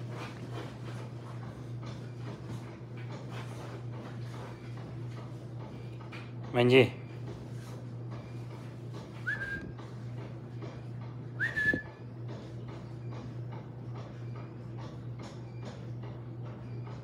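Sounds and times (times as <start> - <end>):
person whistling: 9.2 - 9.7, 11.4 - 12.0.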